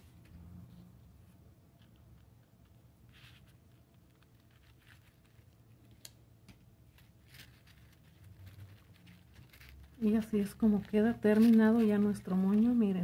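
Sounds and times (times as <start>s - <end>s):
hair bow rustling: 1.2s - 13.0s.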